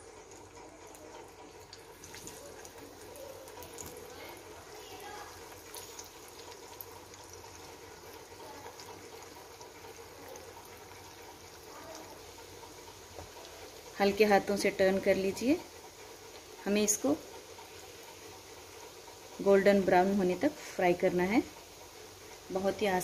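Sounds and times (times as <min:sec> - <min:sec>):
food frying in hot oil: 0:00.0 - 0:23.0
small crackles: 0:00.2 - 0:14.0.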